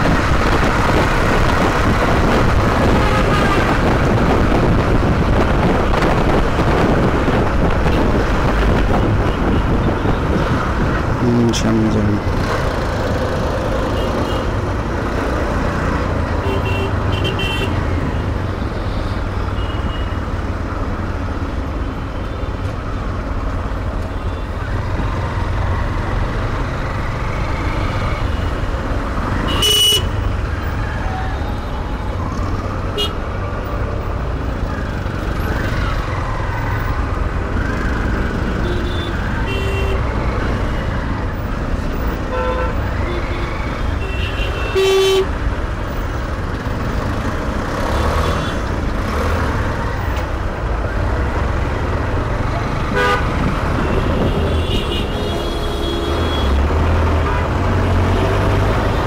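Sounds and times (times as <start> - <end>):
engines and wind rumble: 0.0 - 59.0
car horn toots: 52.9 - 53.2.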